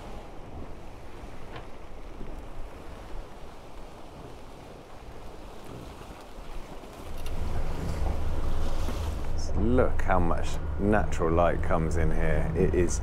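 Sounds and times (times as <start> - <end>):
water rushing along boat hulls: 0.0 - 13.0
wind buffeting microphone: 0.0 - 13.0.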